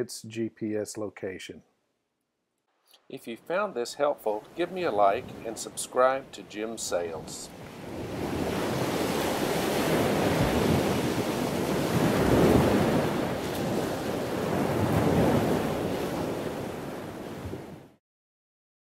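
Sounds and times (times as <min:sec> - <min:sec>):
sea noise: 0:03.2 - 0:18.0
wind buffeting microphone: 0:07.2 - 0:17.8.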